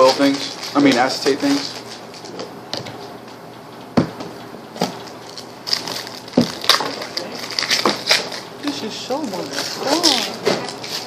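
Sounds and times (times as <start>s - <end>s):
foil wrapper crinkling: 0.0s - 2.5s, 5.2s - 11.0s.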